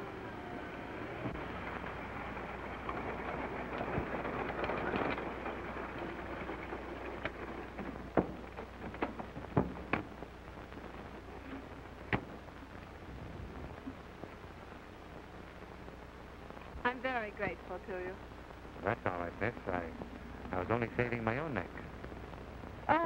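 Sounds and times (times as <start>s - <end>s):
car engine running: 0.0s - 23.0s
old film soundtrack hiss: 0.0s - 23.0s
sharp knocks and clicks: 2.7s - 11.2s, 12.0s - 12.5s.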